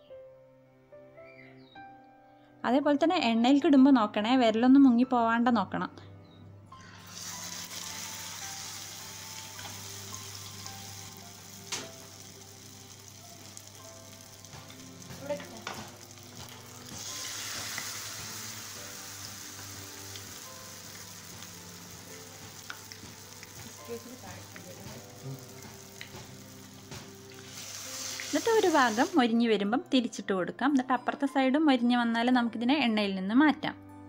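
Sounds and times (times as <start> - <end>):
food deep-frying in oil: 7.0 - 29.2.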